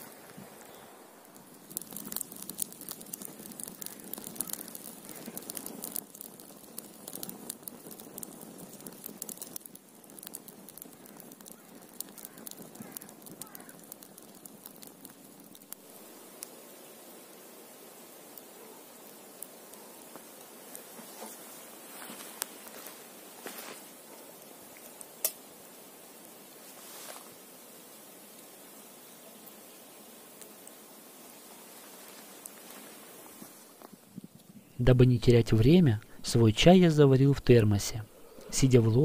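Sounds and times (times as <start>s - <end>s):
sharp pops and snaps: 0.0s - 16.8s, 17.6s - 26.4s
wood campfire crackling: 0.0s - 39.0s.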